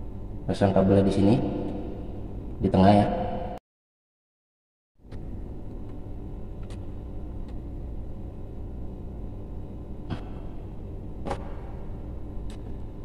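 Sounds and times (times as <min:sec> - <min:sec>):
low rumble of background noise: 0:05.0 - 0:13.0.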